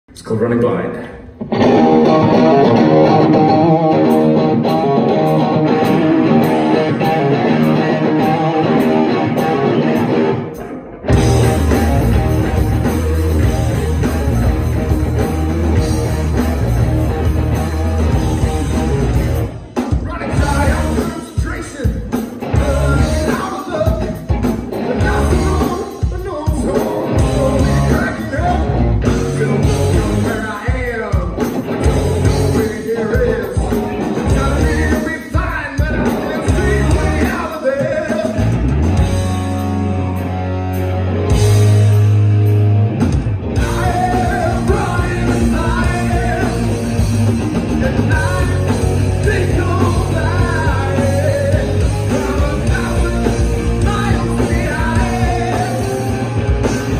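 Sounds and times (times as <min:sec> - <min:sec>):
rock band playing live: 0:00.2 - 0:56.9
person singing: 0:19.9 - 0:38.6, 0:43.6 - 0:47.0, 0:47.6 - 0:56.9.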